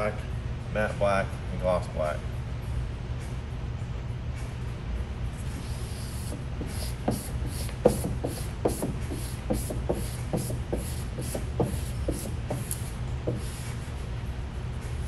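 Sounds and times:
steady low hum: 0.0s - 15.0s
squeegee scraping vinyl film: 5.6s - 13.7s.

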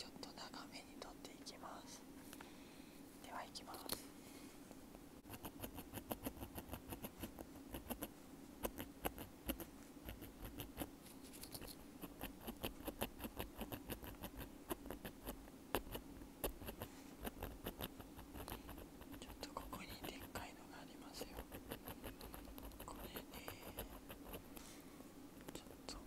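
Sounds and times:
ear pick scratching on earbud: 5.2s - 20.4s, 21.1s - 24.5s.

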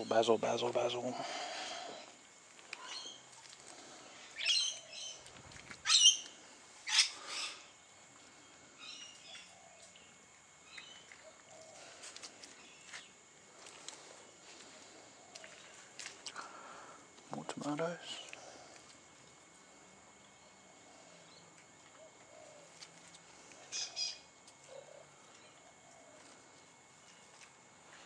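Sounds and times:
birds calling: 0.0s - 13.2s, 20.2s - 26.4s.

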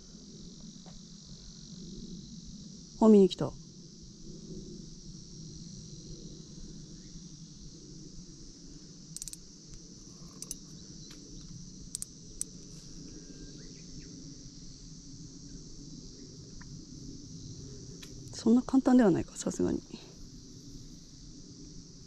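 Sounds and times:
insects chirring: 0.0s - 22.0s.

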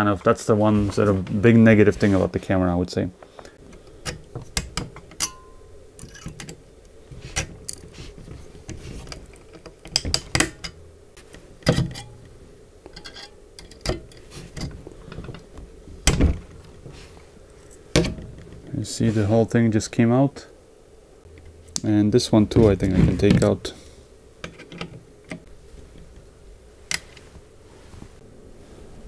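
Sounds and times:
pliers clicking and scraping metal: 3.8s - 6.6s, 7.3s - 8.0s, 11.6s - 15.4s.

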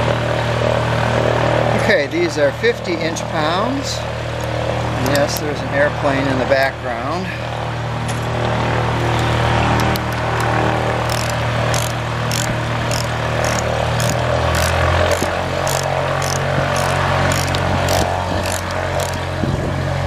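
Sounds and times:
propeller engine drone: 0.0s - 20.0s
ratchet wrench clicks: 11.1s - 19.2s.

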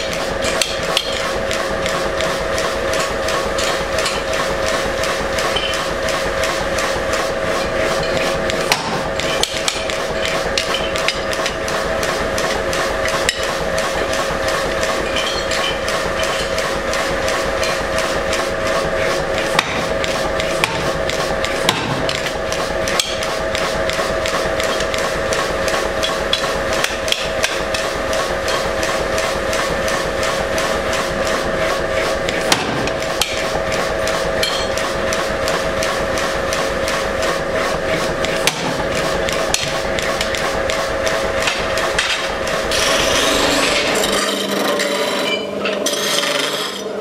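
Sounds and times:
hammer striking hot steel: 0.0s - 1.2s, 7.6s - 11.6s, 19.4s - 25.0s, 26.0s - 27.9s, 32.3s - 33.5s, 34.4s - 34.8s, 38.3s - 40.8s
workshop machine hum: 0.0s - 47.0s.

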